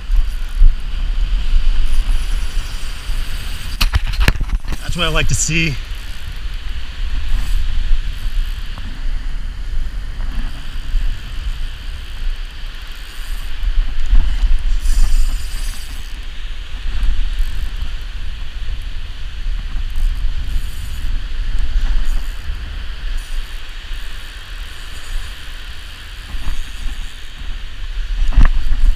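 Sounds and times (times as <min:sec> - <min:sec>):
surf washing onto beach: 0:00.0 - 0:11.9.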